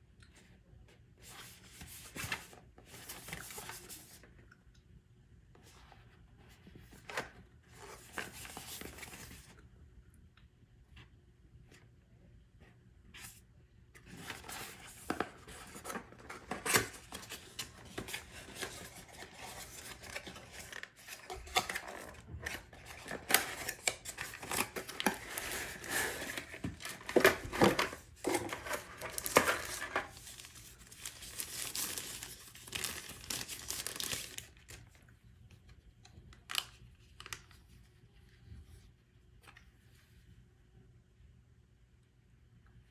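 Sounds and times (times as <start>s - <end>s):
packaging scraping and crinkling: 14.1s - 34.7s.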